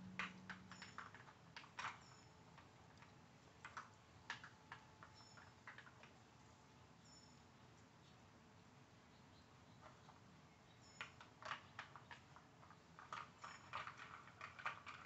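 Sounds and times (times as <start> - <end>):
plastic puzzle toy clicks: 0.2 - 2.0, 3.6 - 6.1, 11.0 - 15.0.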